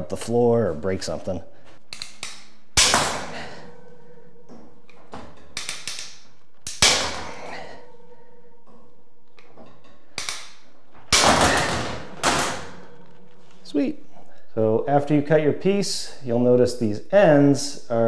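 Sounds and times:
bolt cutters snapping wire: 1.9 - 3.1, 4.9 - 7.0, 9.4 - 11.2.

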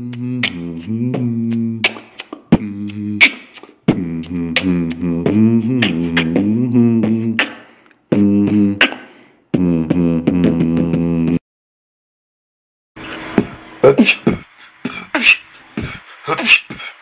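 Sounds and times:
hummed bass line: 0.0 - 1.9, 2.6 - 3.3, 3.9 - 7.4, 8.1 - 8.9, 9.6 - 11.4
human beatboxing: 0.0 - 11.4, 13.3 - 17.0.

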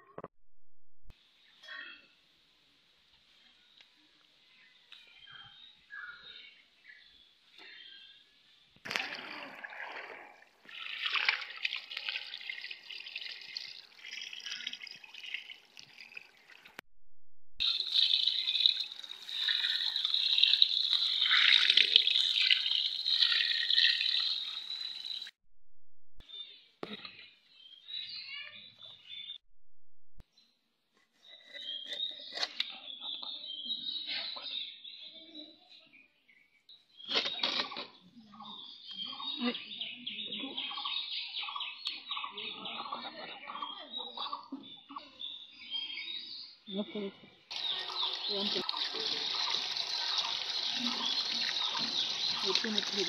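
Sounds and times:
running water splashing: 8.8 - 16.8, 17.6 - 25.3, 47.5 - 53.0
birds chirping: 17.6 - 25.3, 31.2 - 53.0.

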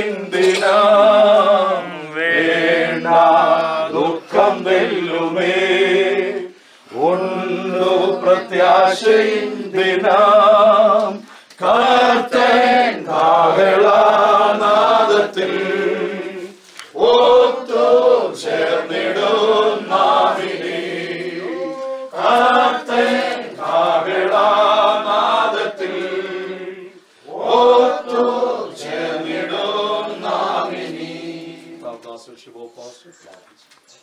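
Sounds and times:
group singing a hymn unaccompanied: 0.0 - 32.0.

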